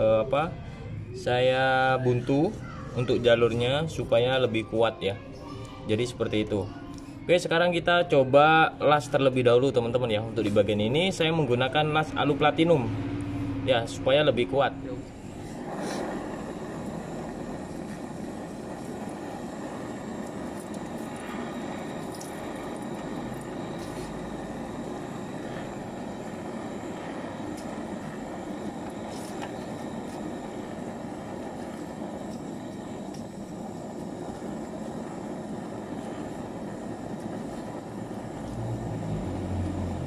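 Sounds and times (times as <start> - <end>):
gas torch roaring hiss: 8.6 - 40.0.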